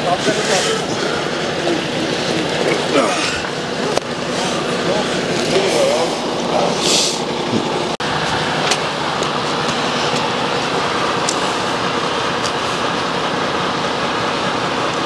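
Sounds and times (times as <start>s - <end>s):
truck dragged across asphalt: 0.0s - 15.0s.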